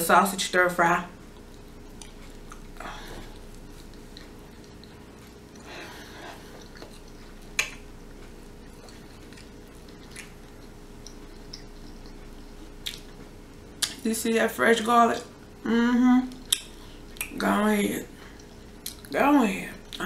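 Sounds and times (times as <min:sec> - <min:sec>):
person chewing food: 0:01.2 - 0:14.0, 0:16.3 - 0:17.5, 0:18.2 - 0:19.2.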